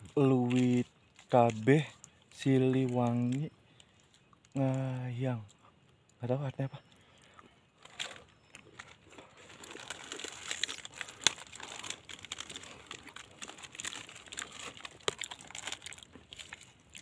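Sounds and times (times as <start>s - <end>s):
plastic wrapper crinkling: 0.0s - 5.0s, 7.8s - 17.0s.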